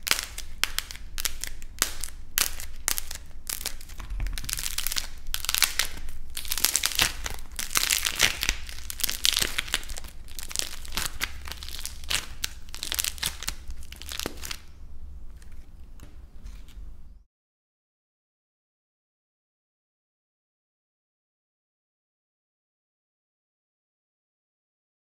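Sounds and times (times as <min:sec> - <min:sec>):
clay crust crackling: 0:00.0 - 0:17.2
hands kneading clay: 0:00.0 - 0:17.2.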